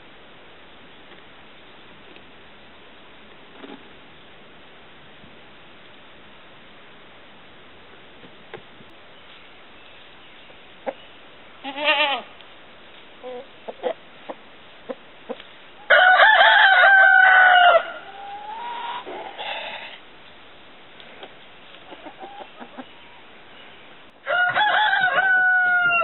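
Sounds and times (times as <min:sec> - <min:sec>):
rooster crowing: 0:15.9 - 0:18.6, 0:24.2 - 0:26.0
wavering animal call: 0:17.9 - 0:19.8.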